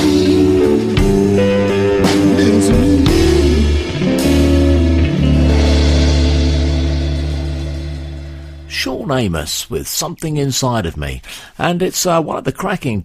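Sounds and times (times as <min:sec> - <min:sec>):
electric blues music: 0:00.0 - 0:09.0.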